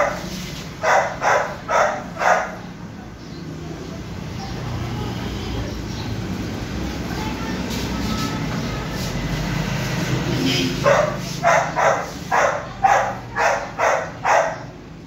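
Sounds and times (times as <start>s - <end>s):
dog barking: 0.0s - 2.8s, 10.8s - 14.8s.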